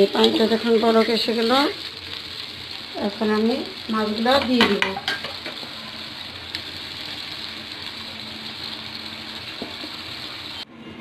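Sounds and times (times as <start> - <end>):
gravy sizzling in a pan: 0.0 - 10.6.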